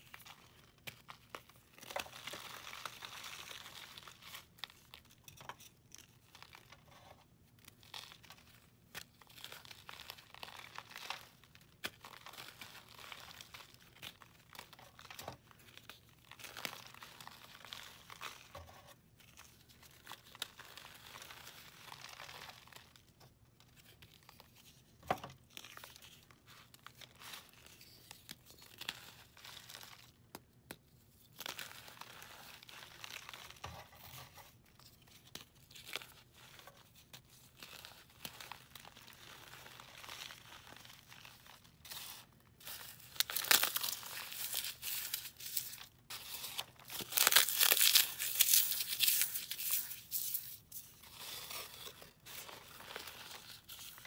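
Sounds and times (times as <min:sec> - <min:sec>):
floral foam crushed by hand: 0:42.6 - 0:53.8.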